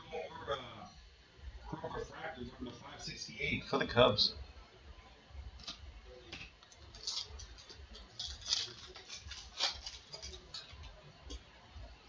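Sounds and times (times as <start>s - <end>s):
cards scraping: 5.6s - 11.0s
trading cards rustling and tapping: 5.6s - 11.4s.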